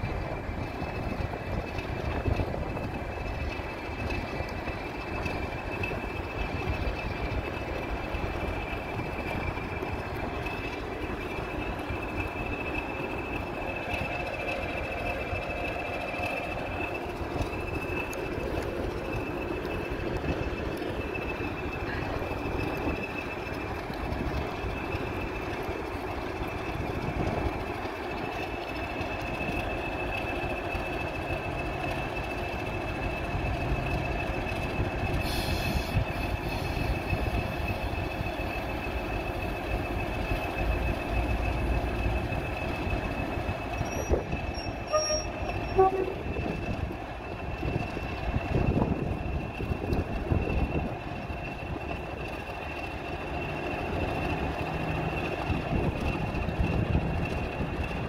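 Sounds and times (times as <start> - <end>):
locomotive engine rumble: 0.0 - 58.0.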